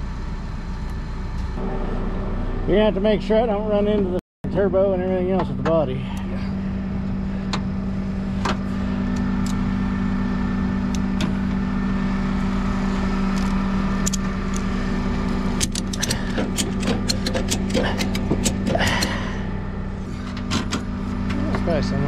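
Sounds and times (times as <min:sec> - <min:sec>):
lifting machine engine humming: 0:00.0 - 0:22.0
sharp metallic clicks: 0:13.3 - 0:14.7, 0:15.6 - 0:19.2.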